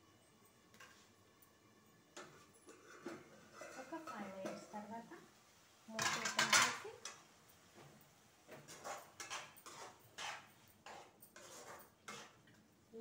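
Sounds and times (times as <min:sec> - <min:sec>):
metal ladle scraping a pan: 0:02.2 - 0:04.8, 0:08.5 - 0:12.5.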